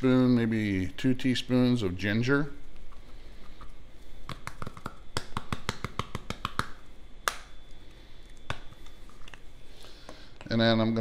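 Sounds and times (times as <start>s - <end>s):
hand tapping a spice jar: 4.3s - 7.5s.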